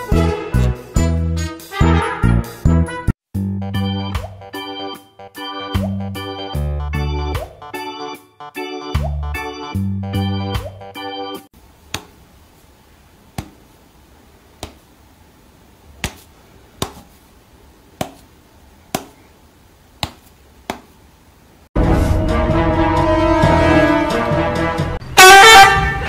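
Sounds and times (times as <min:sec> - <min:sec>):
loud music with horn: 0:00.0 - 0:02.9, 0:21.8 - 0:26.0
fingers snapping: 0:13.4 - 0:13.6, 0:14.6 - 0:14.8, 0:16.0 - 0:17.1, 0:20.0 - 0:20.9.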